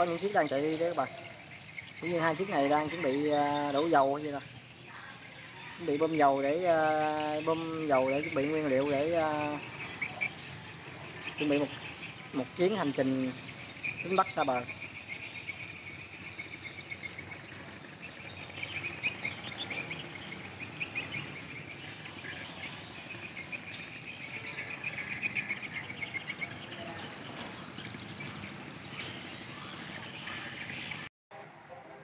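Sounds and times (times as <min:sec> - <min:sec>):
high chirping calls: 0:00.0 - 0:31.1
steady background noise: 0:00.0 - 0:32.0.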